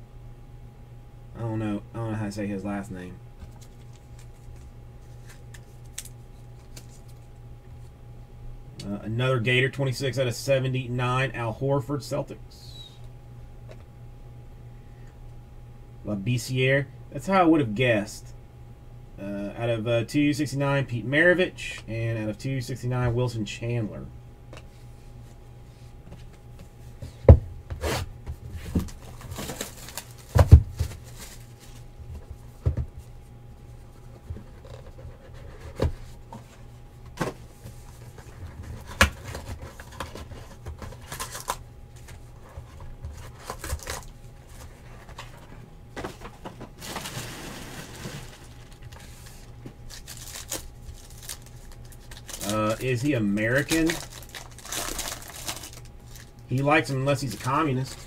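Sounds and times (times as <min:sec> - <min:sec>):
foil packs rustling: 0:28.5 - 0:31.9, 0:37.7 - 0:45.5, 0:46.1 - 0:58.0.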